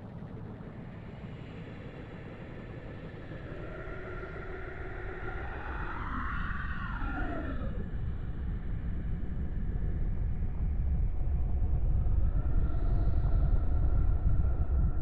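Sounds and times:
deep steady rumble: 8.1 - 15.0.

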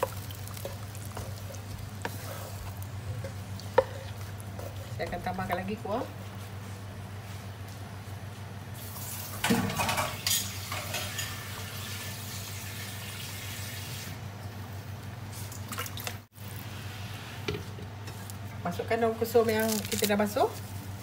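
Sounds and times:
water pouring into a pan: 9.7 - 14.1.

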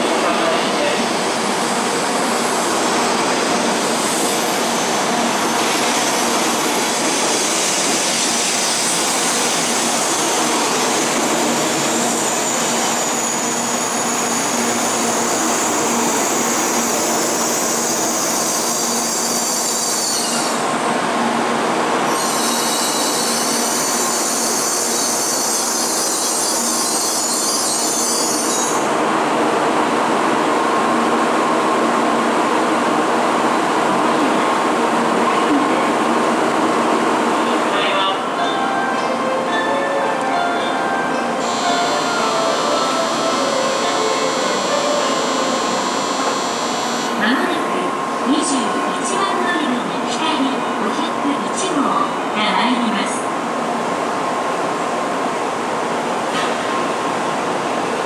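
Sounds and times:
high squeal: 11.4 - 20.6, 22.1 - 28.9.

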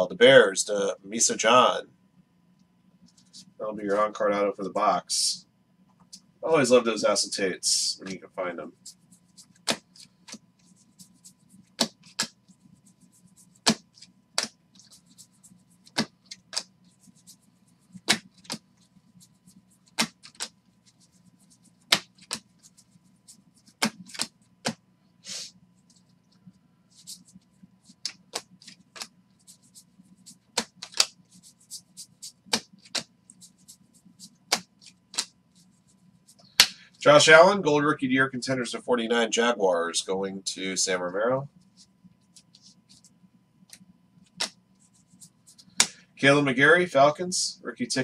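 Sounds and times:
faint steady hum: 0.0 - 48.0
card scraping: 8.0 - 36.7
cards snapping off a stack: 9.6 - 10.4, 13.6 - 13.8, 20.0 - 20.5, 23.8 - 24.8, 30.6 - 31.1, 44.4 - 44.6.

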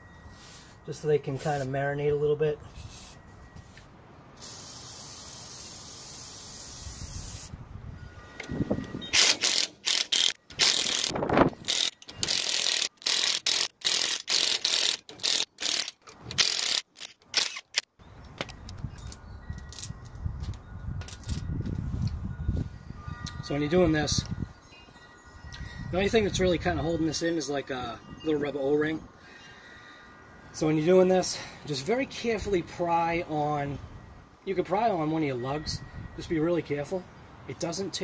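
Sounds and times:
aerosol spray hissing: 2.8 - 3.2, 4.4 - 7.6
impact wrench rattling bursts: 9.1 - 17.9.

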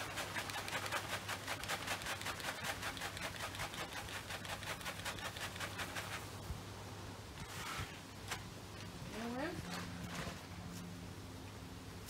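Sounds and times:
mealworms rattling in plastic bag: 0.0 - 6.3.

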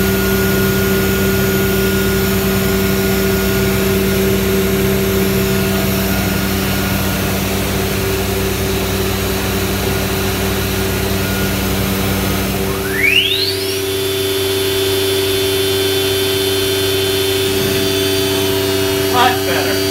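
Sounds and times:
cnc router running: 0.0 - 19.9.

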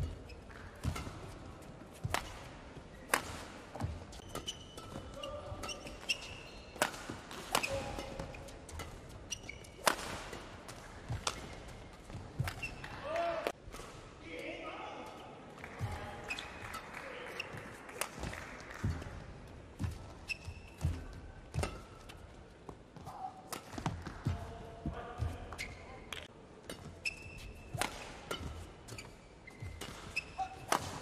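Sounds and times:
shoes squeaking on court: 0.0 - 13.0, 19.8 - 24.4, 25.2 - 31.0
rackets hitting shuttlecock: 0.0 - 14.0, 19.8 - 22.2, 23.0 - 24.5, 25.6 - 31.0.

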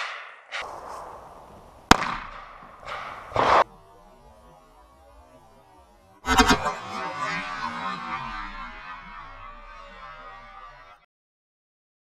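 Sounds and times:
dull burst of noise: 0.6 - 11.0
rifle gunshot: 1.8 - 3.6.

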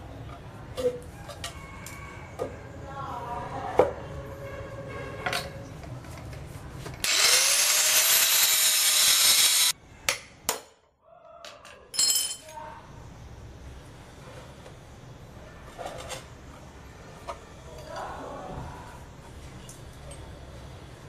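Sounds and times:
power tool motor: 7.0 - 9.7.

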